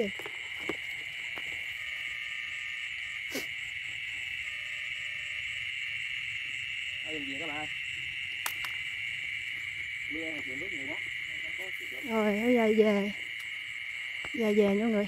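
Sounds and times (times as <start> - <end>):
crickets chirring: 0.0 - 15.0
sharp click: 8.4 - 8.8.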